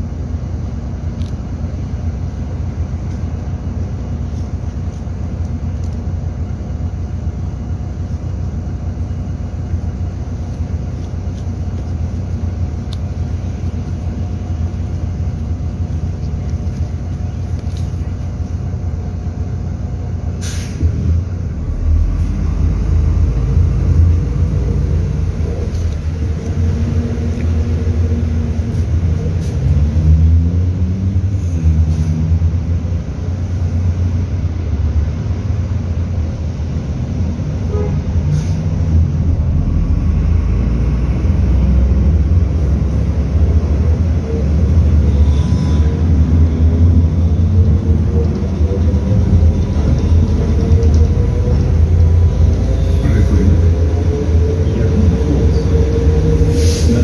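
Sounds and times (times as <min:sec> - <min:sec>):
bus diesel engine rumbling: 0:00.0 - 0:57.0
brief hiss: 0:20.4 - 0:20.9.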